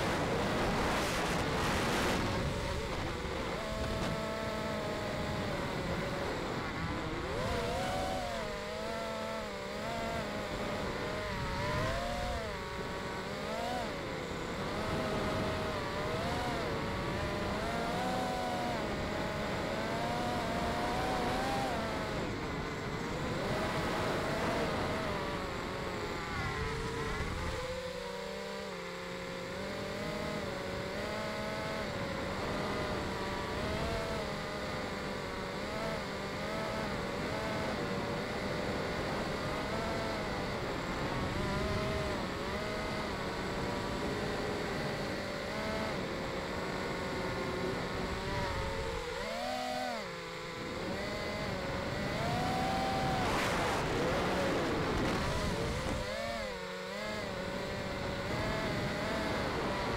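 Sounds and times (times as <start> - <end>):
wind noise: 0.0 - 7.6, 51.0 - 56.5
drone motors whining: 0.0 - 59.9.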